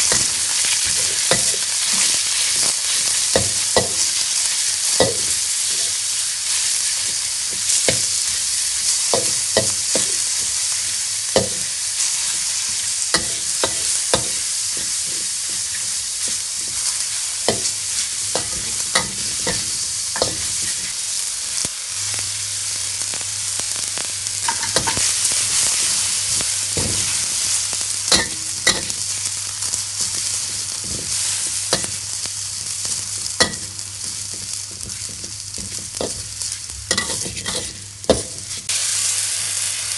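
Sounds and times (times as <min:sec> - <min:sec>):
meat sizzling in a wok: 0:00.0 - 0:39.9
metal spatula scraping pan: 0:32.9 - 0:38.6.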